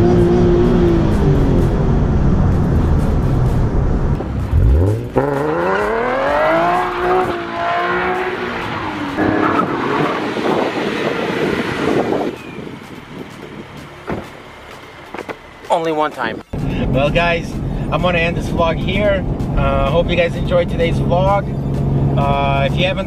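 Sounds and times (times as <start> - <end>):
car engine revving: 0.0 - 15.7.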